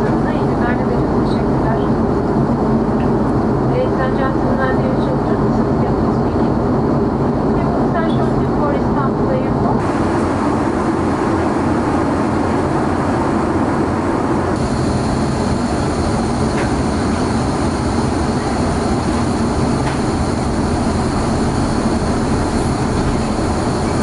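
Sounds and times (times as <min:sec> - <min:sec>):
airplane cabin airflow and engine noise: 0:00.0 - 0:24.0
thin high whine: 0:09.8 - 0:24.0.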